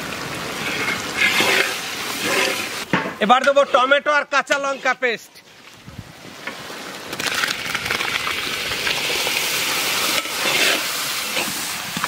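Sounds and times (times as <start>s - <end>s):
paste sizzling in hot oil: 0.6s - 2.9s, 7.4s - 12.0s
metal spatula stirring: 0.6s - 5.0s, 10.1s - 11.7s.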